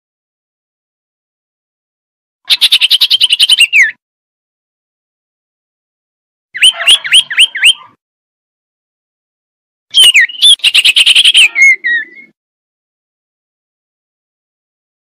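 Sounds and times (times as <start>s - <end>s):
bird whistling calls with trill: 2.5s - 4.0s, 6.6s - 8.0s, 9.9s - 12.4s.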